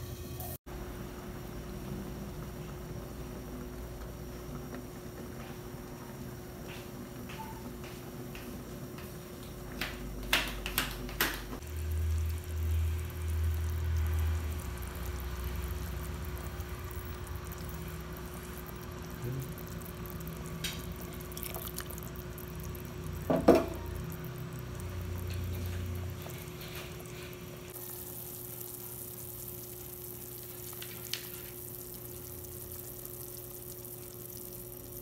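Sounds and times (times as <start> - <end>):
faint steady hum: 11.5 - 35.0
soup bubbling in a pot: 11.6 - 35.0.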